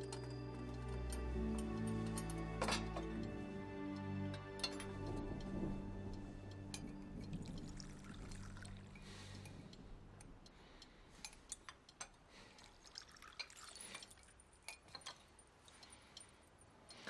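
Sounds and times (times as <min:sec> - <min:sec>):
low music: 0:00.0 - 0:10.8
faint ticks and drips: 0:03.0 - 0:17.0
tea trickling into a cup: 0:07.2 - 0:09.6, 0:12.5 - 0:16.1.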